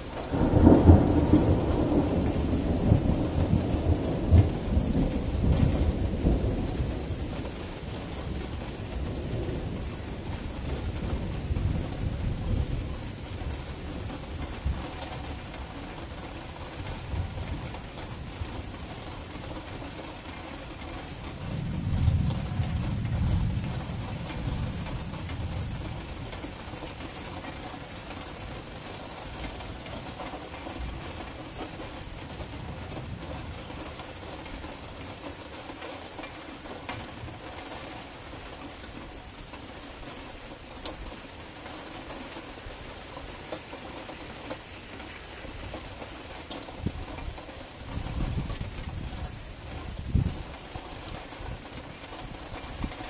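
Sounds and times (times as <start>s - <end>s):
low rumble of thunder: 0.0s - 53.0s
steady rain: 0.0s - 53.0s.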